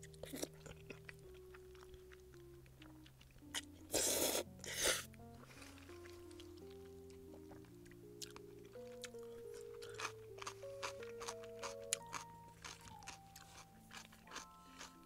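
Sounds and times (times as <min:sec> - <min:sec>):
quiet background music: 0:00.0 - 0:15.0
chewing clicks: 0:08.2 - 0:15.0.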